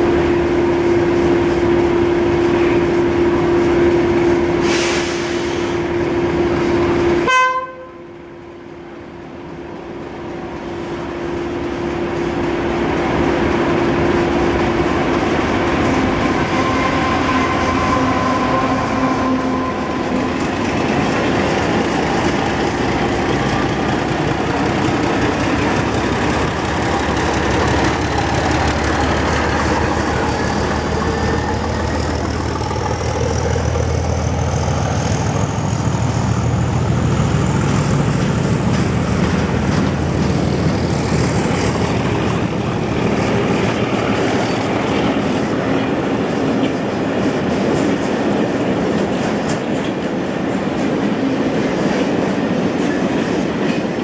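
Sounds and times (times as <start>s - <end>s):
diesel locomotive engine humming: 0.0s - 54.0s
train coaches rumbling past: 0.0s - 54.0s
wheels clicking over rail joints: 20.1s - 35.4s, 38.1s - 54.0s.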